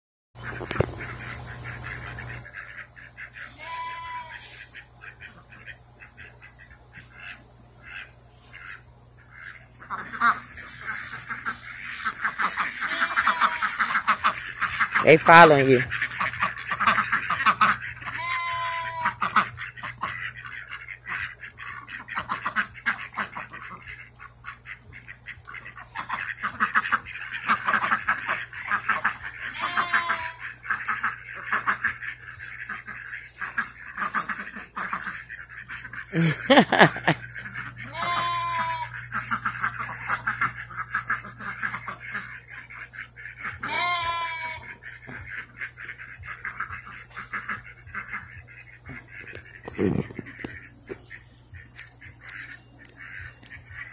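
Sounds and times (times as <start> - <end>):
ducks quacking: 0.4 - 53.9
longer pitched animal call: 12.8 - 13.9.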